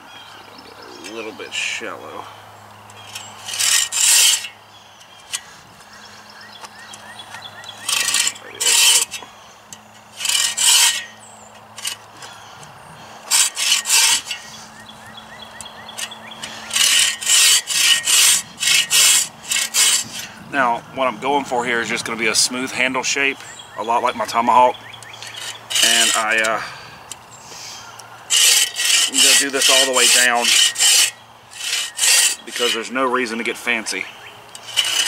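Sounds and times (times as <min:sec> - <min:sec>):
bow saw cutting log: 0:03.1 - 0:04.6, 0:07.8 - 0:09.3, 0:10.1 - 0:11.2, 0:13.3 - 0:14.7, 0:16.2 - 0:20.4, 0:25.2 - 0:26.6, 0:28.3 - 0:33.0, 0:34.6 - 0:35.0.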